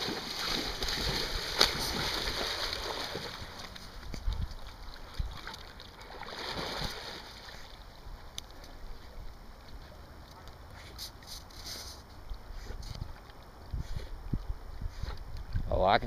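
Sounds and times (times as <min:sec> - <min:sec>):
dog splashing through water: 0:00.0 - 0:04.0, 0:04.6 - 0:07.7.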